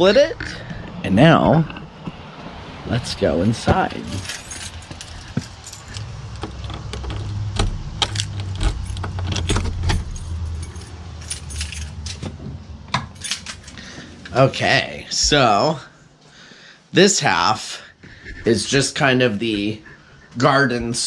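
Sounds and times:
keys jangling on a ring: 4.0 - 12.3, 13.1 - 14.0
key turning in a lock: 4.2 - 12.3, 13.1 - 13.8.

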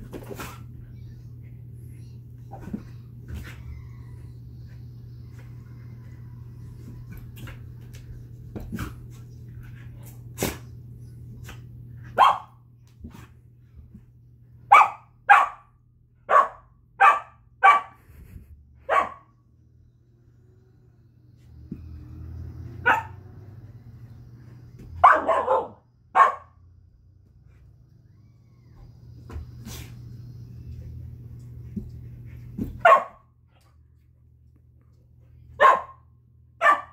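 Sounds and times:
puppy barking: 12.2 - 12.6, 14.7 - 15.7, 16.3 - 18.0, 18.9 - 19.3, 22.8 - 23.2, 25.0 - 26.6, 32.8 - 33.2, 35.6 - 36.0, 36.6 - 36.9.

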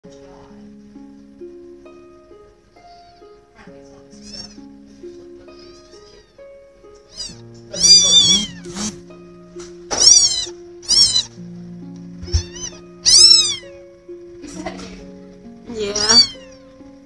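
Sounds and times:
soft background music: 0.0 - 17.0
kitten mewing: 4.2 - 4.6, 7.1 - 9.0, 9.9 - 11.3, 12.2 - 13.7, 15.8 - 16.6.

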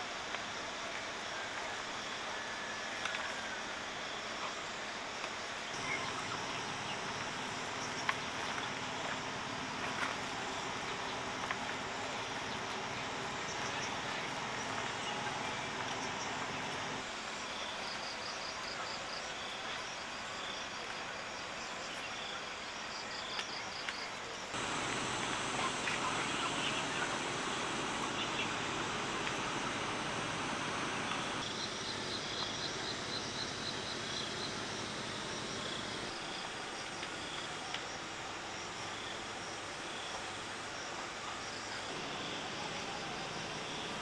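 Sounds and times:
outdoor background noise: 0.0 - 44.0.

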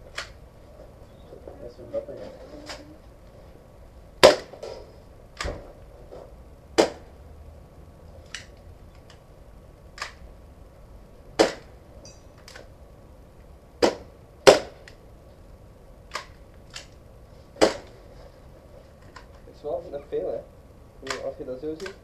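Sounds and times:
airsoft pistol shots: 4.2 - 4.7, 6.8 - 7.1, 11.4 - 11.7, 13.8 - 14.9, 17.6 - 17.9.

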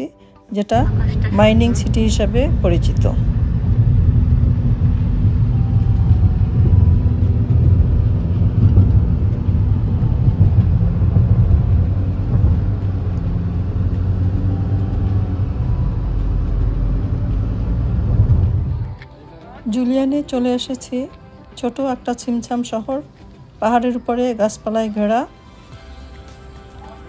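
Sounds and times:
engine and tyre rumble in car: 0.8 - 19.1.

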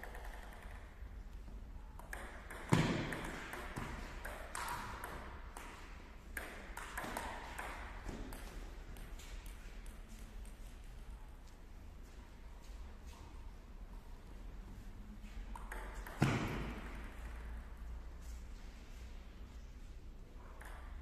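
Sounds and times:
table tennis ball taps: 2.0 - 10.0, 15.5 - 17.5, 20.6 - 21.0.

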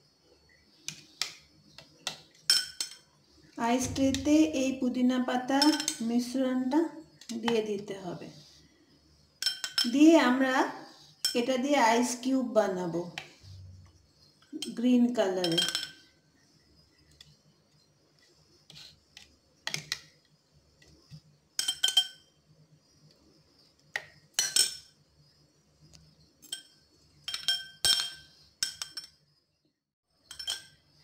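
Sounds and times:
metal spoon clinking on glass bowl: 9.4 - 10.0, 26.4 - 29.2, 30.3 - 30.8.

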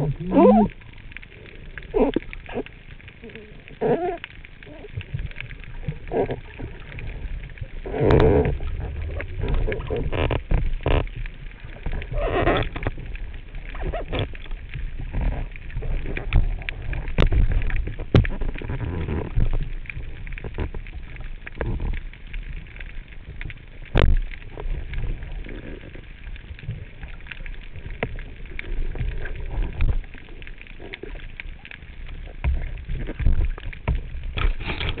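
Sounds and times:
person grunting underwater: 0.0 - 0.8, 1.9 - 5.0
underwater rumble: 0.0 - 35.0
underwater knocks: 13.8 - 21.0, 32.4 - 35.0.

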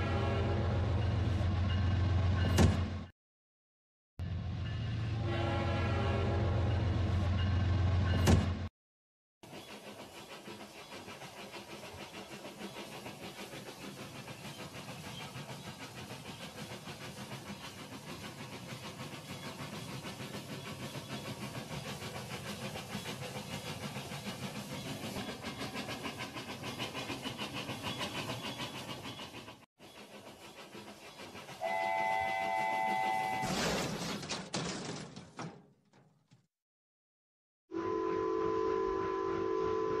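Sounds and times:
electronic toy train whistle: 31.6 - 33.6, 37.7 - 40.0.

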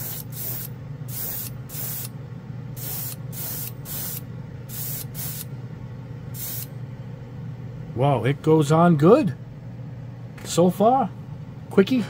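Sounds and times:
airbrush spraying hiss: 0.0 - 2.1, 2.8 - 5.5, 6.4 - 6.7
steady low hum: 0.0 - 12.0.

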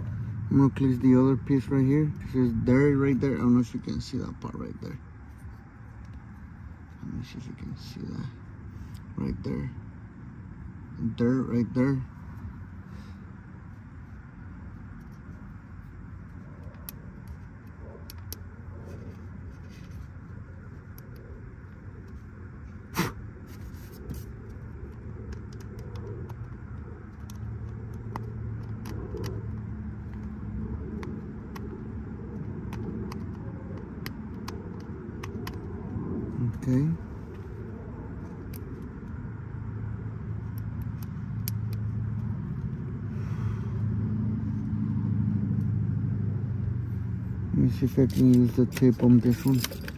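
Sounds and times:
low background rumble: 0.0 - 49.9
motor vehicle engine hum: 0.0 - 49.9
light clicks of small parts: 23.6 - 30.4, 40.4 - 42.8, 47.8 - 49.9
light clicks and taps: 23.9 - 36.0.

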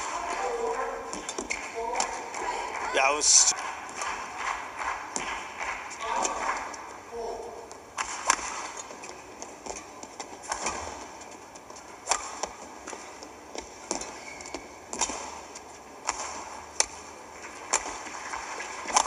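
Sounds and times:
rackets hitting shuttlecock: 0.0 - 2.8, 7.7 - 11.3, 12.0 - 17.0
large hall background: 0.0 - 19.0.

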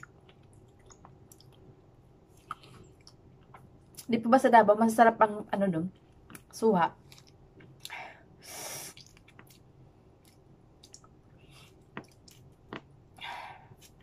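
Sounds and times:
breaths through the nose: 7.9 - 9.1
wet mouth clicks: 8.8 - 9.6, 10.2 - 11.2.

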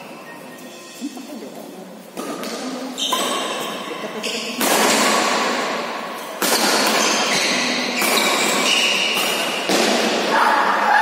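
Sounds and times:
badminton racket hitting shuttlecock: 4.5 - 5.6, 6.4 - 10.3.

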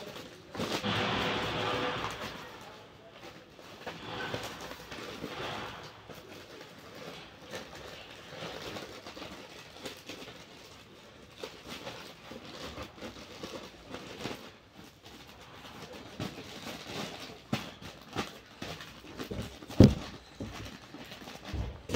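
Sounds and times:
plastic bags rustling: 0.0 - 21.9.

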